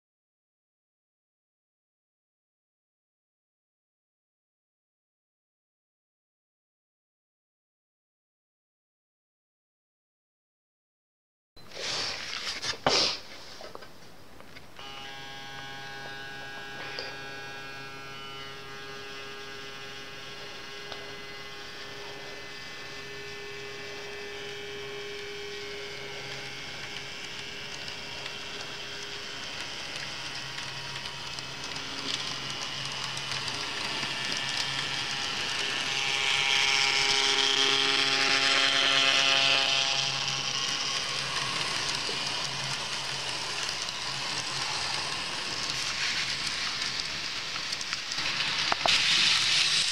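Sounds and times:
wheels hissing on rail: 11.7s - 13.8s, 14.8s - 49.9s
model train motor whining: 14.8s - 49.9s.

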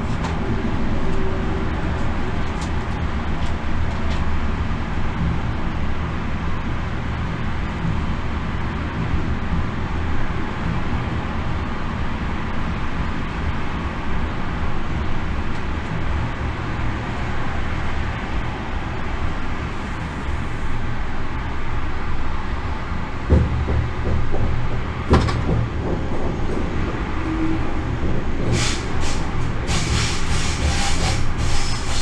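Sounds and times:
wheel on rail rumble: 0.0s - 32.0s
thump: 23.3s - 26.6s.

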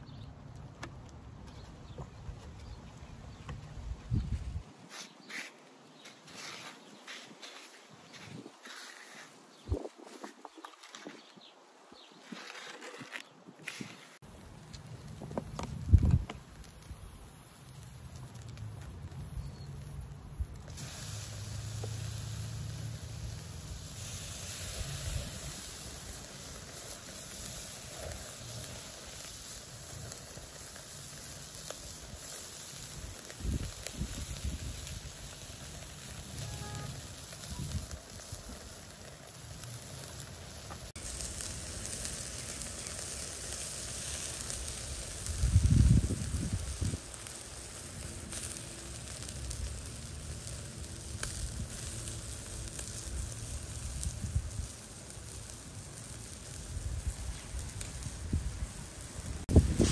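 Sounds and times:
pops and crackles: 12.2s - 22.2s, 23.6s - 59.9s
chicken sizzling on grill: 13.7s - 59.9s.

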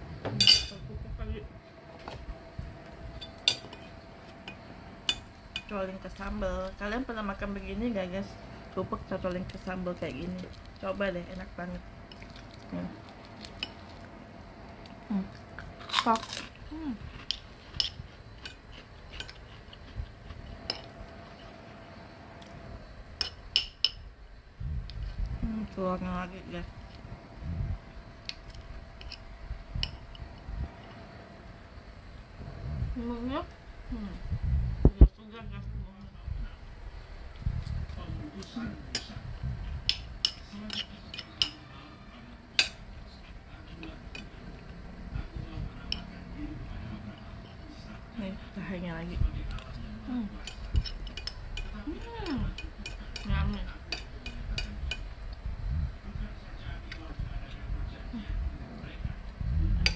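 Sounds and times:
metal spoon clinking on plate: 0.4s - 0.8s, 39.9s - 41.6s, 52.6s - 53.3s.

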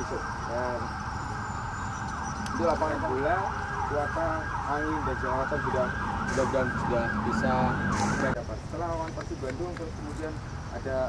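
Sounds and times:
siren yelping: 0.0s - 8.4s.

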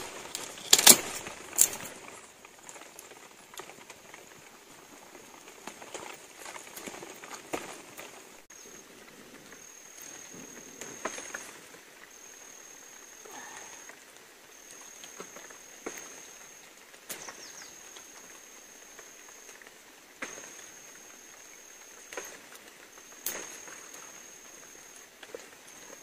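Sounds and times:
insect trilling: 9.5s - 19.6s.

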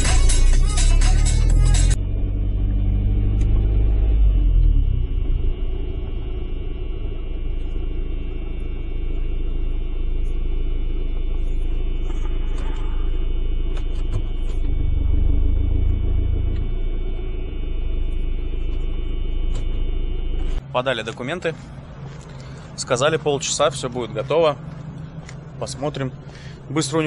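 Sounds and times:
van engine rumbling: 0.0s - 27.0s.

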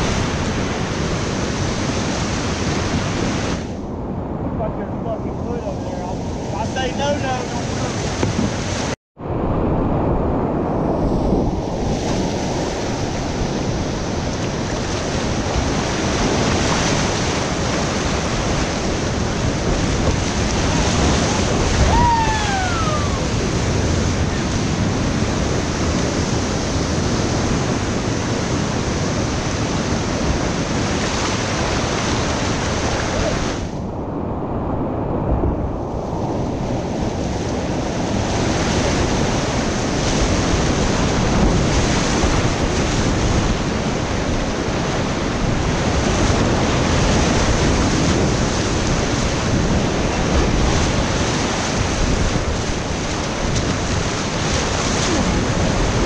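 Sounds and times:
wind buffeting microphone: 0.0s - 56.0s
whitewater rapids rushing: 14.4s - 25.8s, 38.5s - 56.0s.

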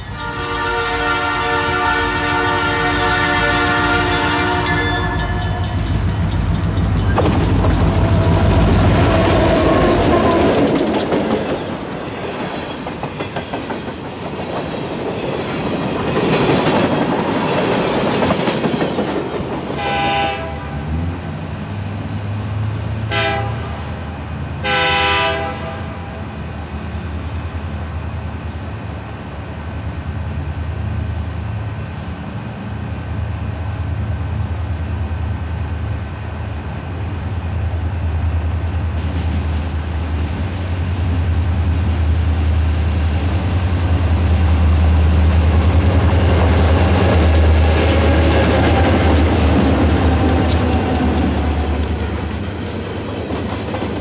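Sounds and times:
distant train air horn: 0.0s - 5.9s, 8.5s - 10.6s, 19.8s - 21.0s, 23.1s - 26.4s
diesel locomotive engine rumble: 0.0s - 54.0s
freight cars wheel and rail noise: 0.0s - 54.0s.

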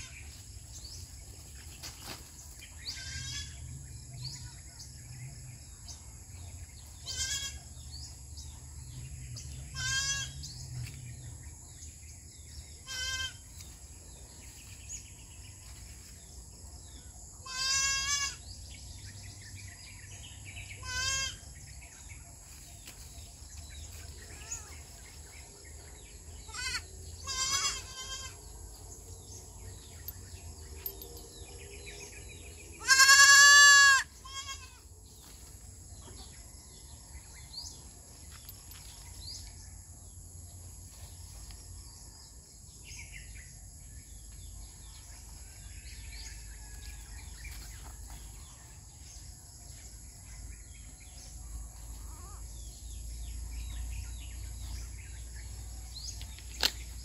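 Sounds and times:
goat kids bleating: 2.9s - 3.6s, 7.0s - 7.6s, 9.7s - 10.4s, 12.8s - 13.5s, 17.4s - 18.4s, 20.8s - 21.4s, 26.5s - 28.4s, 32.8s - 34.8s.

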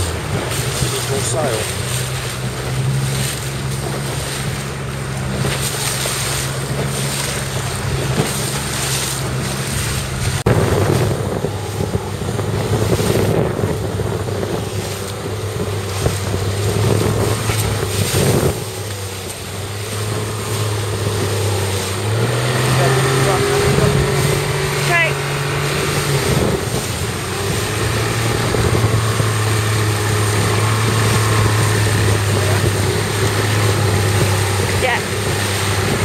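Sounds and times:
motorboat engine droning: 0.0s - 36.0s
water splashing against hull: 0.0s - 36.0s
wind on microphone: 0.0s - 36.0s.

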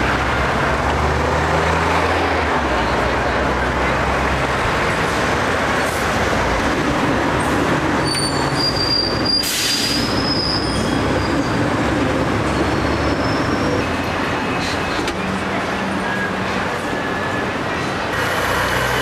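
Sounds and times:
tram rumbling on track: 0.0s - 19.0s
high wheel squeal: 8.0s - 11.7s, 12.4s - 15.1s.

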